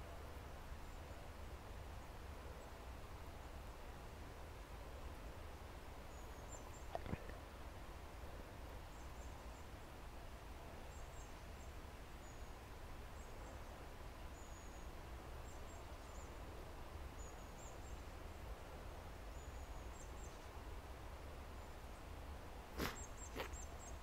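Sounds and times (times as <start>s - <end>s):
even hiss: 22.6s - 24.0s.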